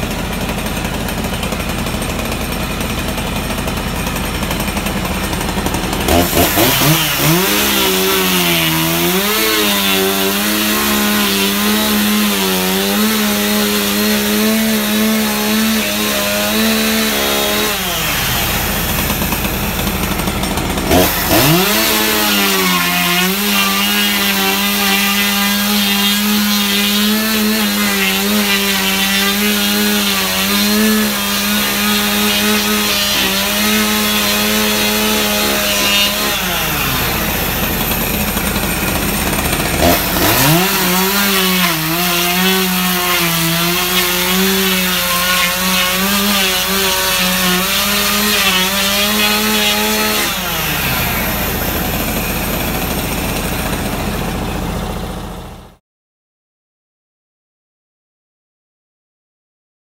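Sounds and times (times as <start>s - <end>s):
chainsaw stripping bark: 0.0s - 55.8s.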